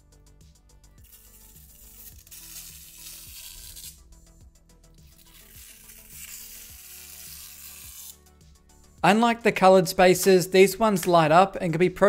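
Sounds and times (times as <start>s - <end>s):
plastic film being peeled off: 1.0s - 4.0s, 5.0s - 8.2s.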